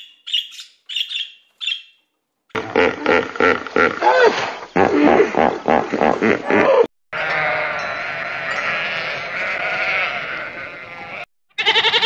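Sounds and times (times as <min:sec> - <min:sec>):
sheep bleating: 0:07.1 - 0:12.0.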